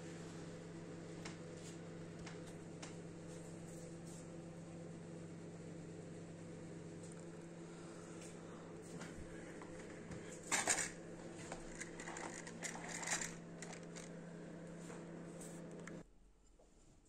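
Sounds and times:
low electric hum: 0.0s - 17.0s
objects clattering on glass table: 10.5s - 11.0s.

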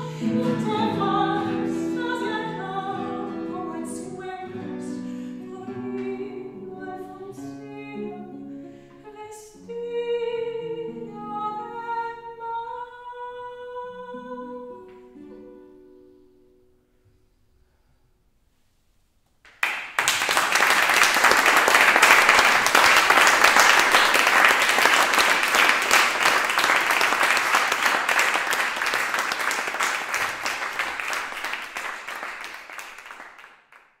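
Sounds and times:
audience applauding: 19.5s - 34.0s.

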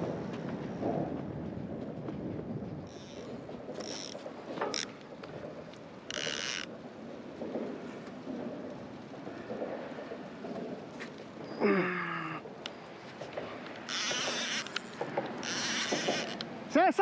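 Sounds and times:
fishing reel ratcheting: 2.9s - 4.9s, 6.1s - 6.7s, 13.9s - 16.5s.

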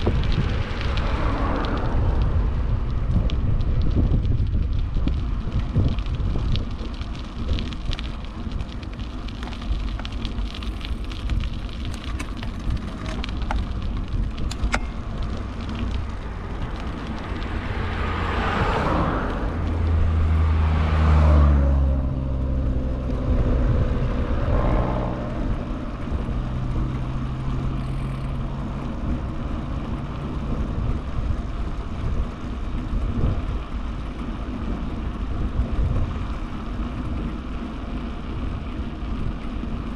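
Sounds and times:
small truck passing: 0.0s - 4.1s, 13.2s - 35.2s
bicycle tyre rumble on asphalt: 0.0s - 39.9s
wind rush on microphone: 0.0s - 39.9s.

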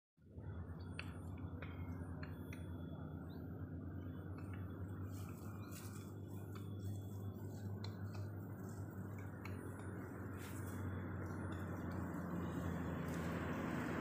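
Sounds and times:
steady low rumble: 0.2s - 14.0s.

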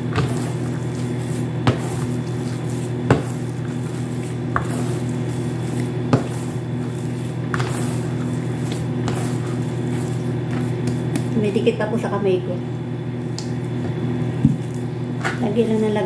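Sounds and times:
dough thumping against basin: 0.0s - 11.4s
steady low hum: 0.0s - 16.0s.

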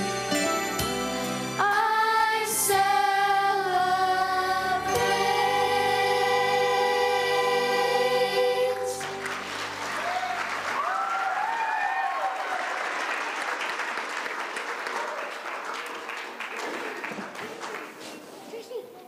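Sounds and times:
children's choir singing: 1.5s - 9.6s
audience applause: 8.9s - 18.2s.

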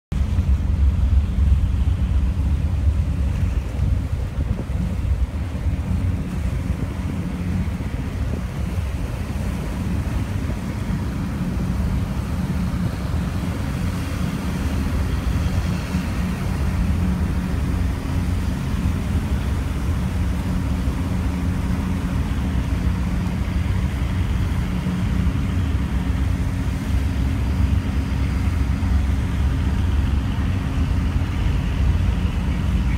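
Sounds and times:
boat wash rushing: 0.1s - 32.9s
ferry engines rumbling: 0.1s - 32.9s
wind on microphone: 0.1s - 32.9s.

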